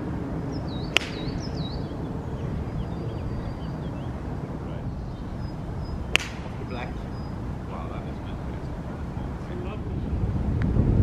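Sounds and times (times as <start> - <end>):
birds chirping: 0.0 - 10.2
low outdoor background noise: 0.0 - 11.0
golf club striking ball: 0.5 - 2.0, 5.5 - 7.3.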